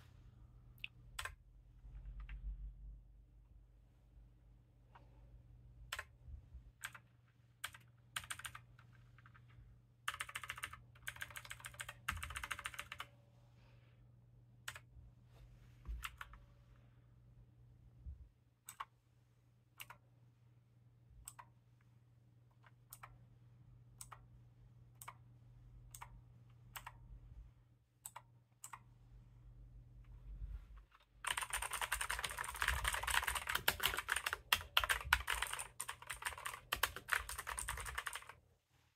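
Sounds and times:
mechanical keyboard clicking: 7.6 - 8.6, 10.1 - 13.1, 31.2 - 38.3.

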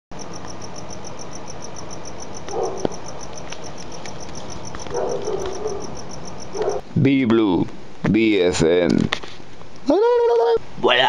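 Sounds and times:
cricket chirping: 0.1 - 6.8
low background hiss: 0.2 - 11.0.

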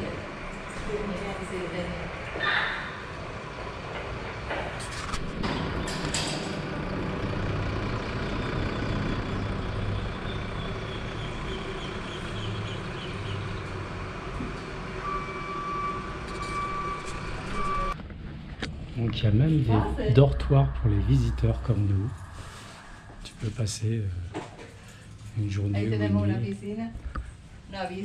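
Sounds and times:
large vehicle engine running: 0.0 - 25.4
steady electronic beep: 15.0 - 18.0, 19.7 - 23.4.

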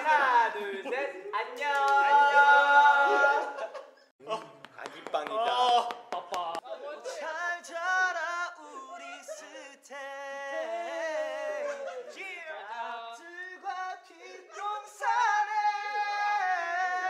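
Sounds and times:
man singing unaccompanied: 6.7 - 17.0.

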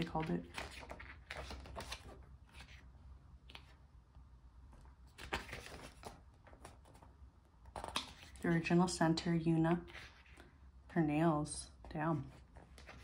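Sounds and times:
pages turning: 0.0 - 3.8, 4.7 - 7.1, 7.7 - 8.5, 9.9 - 10.5, 12.2 - 13.0.

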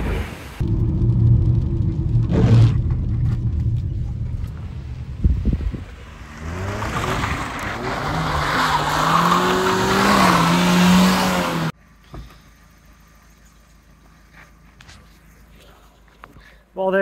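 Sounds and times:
car engine revving: 0.6 - 11.7.

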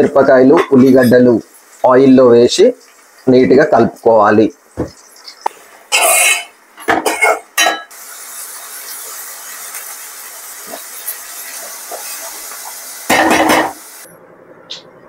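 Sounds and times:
onions sizzling in oil: 0.0 - 14.1
spoon scraping a pan: 5.9 - 7.9.

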